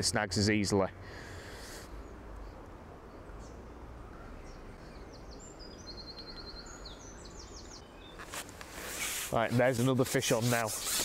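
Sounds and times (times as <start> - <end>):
low outdoor background noise: 0.0 - 11.0
songbird singing with trill: 2.0 - 8.3.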